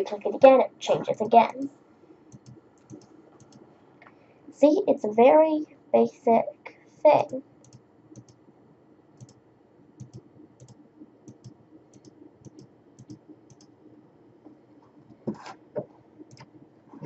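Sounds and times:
computer mouse clicking: 0:02.3 - 0:03.7, 0:07.6 - 0:08.4, 0:09.2 - 0:09.4, 0:10.0 - 0:13.8, 0:16.2 - 0:16.6.

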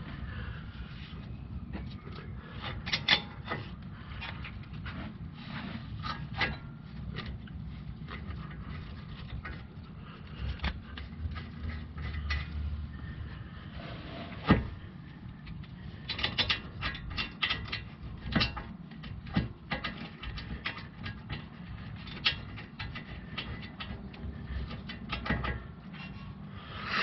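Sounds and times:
low background hum: 0:00.0 - 0:27.0
metal brake parts clicking: 0:01.7 - 0:05.0, 0:15.4 - 0:26.4.

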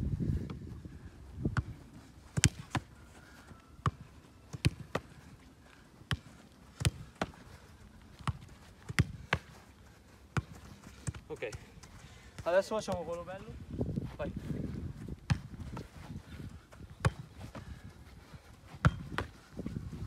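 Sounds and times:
football being kicked: 0:01.5 - 0:02.9, 0:03.8 - 0:05.2, 0:06.1 - 0:07.4, 0:08.2 - 0:09.6, 0:15.2 - 0:15.9, 0:16.9 - 0:17.7, 0:18.7 - 0:19.4.

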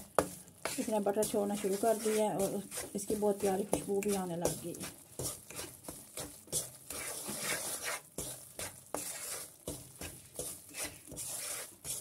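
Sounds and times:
light sizzle: 0:00.0 - 0:12.0
wooden spatula scraping pan: 0:00.0 - 0:12.0.

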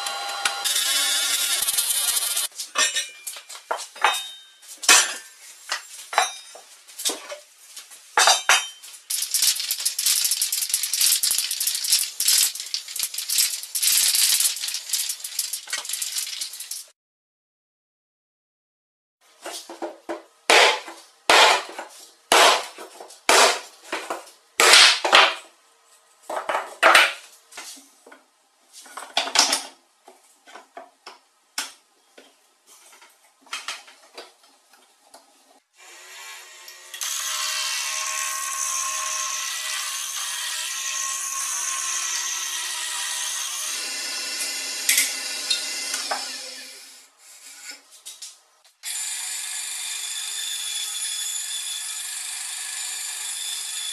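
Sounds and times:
wood lathe turning: 0:00.0 - 0:02.5, 0:36.0 - 0:47.8, 0:48.8 - 0:53.9
hatchet chopping wood: 0:20.5 - 0:21.6, 0:22.3 - 0:22.7, 0:23.3 - 0:23.6.

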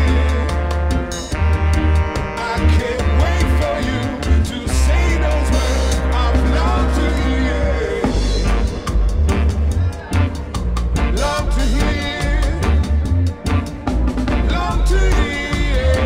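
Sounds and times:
drum kit beat: 0:00.0 - 0:16.0
heavy bass: 0:00.0 - 0:16.0
live reggae band: 0:00.0 - 0:16.0
lead and backing vocals: 0:02.2 - 0:08.8, 0:11.0 - 0:13.4, 0:14.2 - 0:16.0.

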